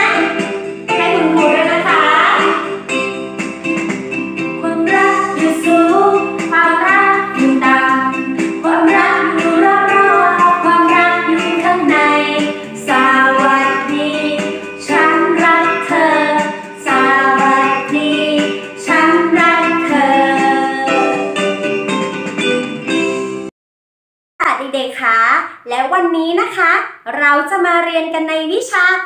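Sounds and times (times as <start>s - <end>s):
woman singing: 0.0s - 2.6s, 4.6s - 21.3s
instrumental backing music: 0.0s - 23.5s.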